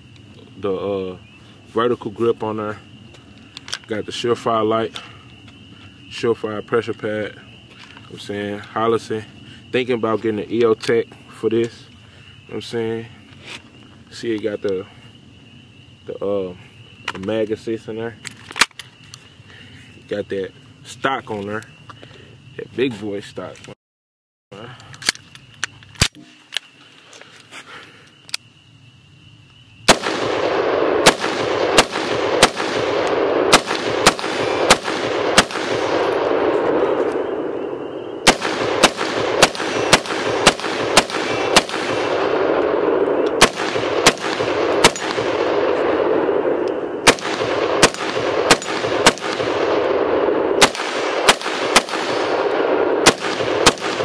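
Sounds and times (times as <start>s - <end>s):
rifle gunshots: 29.9s - 54.0s.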